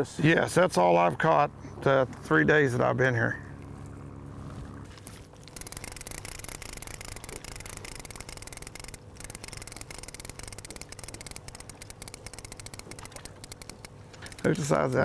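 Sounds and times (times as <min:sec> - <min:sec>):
fishing reel clicking: 0:05.5 - 0:15.0.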